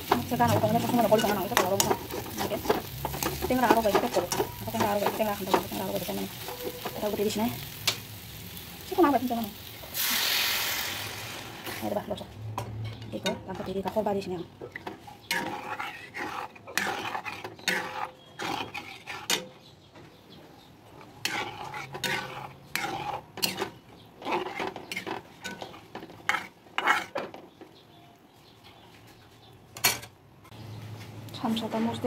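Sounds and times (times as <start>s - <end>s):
metal ladle scraping a wok: 0.0s - 8.0s, 14.8s - 19.5s, 21.0s - 27.2s.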